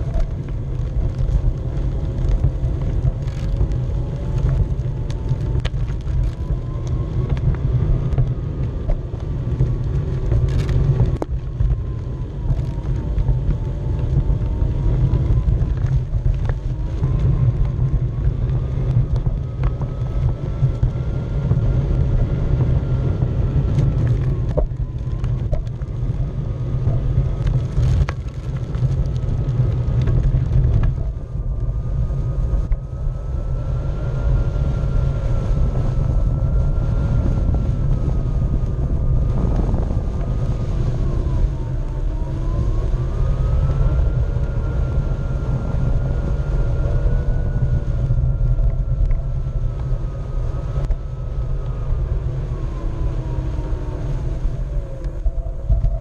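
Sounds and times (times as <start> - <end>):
wind rumble on microphone: 0.0 - 56.0.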